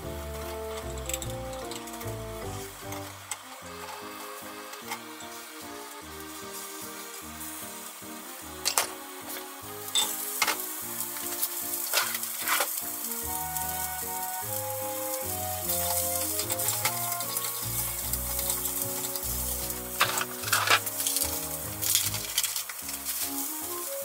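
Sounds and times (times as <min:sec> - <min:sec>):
vegetables sizzling in hot oil: 0:00.0 - 0:24.0
chopsticks clicking against pan: 0:08.6 - 0:23.8.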